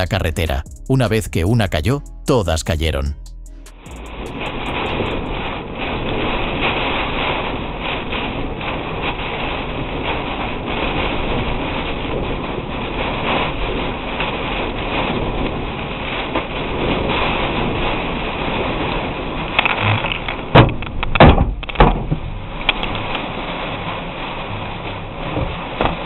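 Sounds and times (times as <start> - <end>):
heavy rain on car: 4.0 - 26.0
storm wind buffeting car: 4.1 - 26.0.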